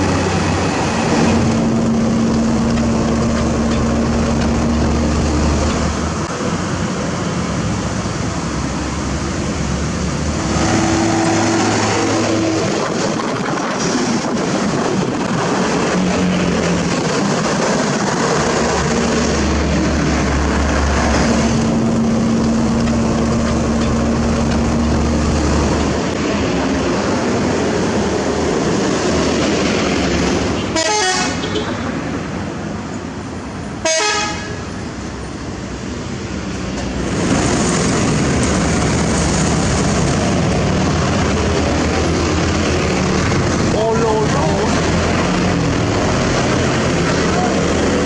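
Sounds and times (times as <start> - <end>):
diesel truck engine running: 0.0 - 7.0, 8.6 - 27.6
road traffic: 0.0 - 48.0
vehicle horn: 30.6 - 31.7, 33.8 - 34.7.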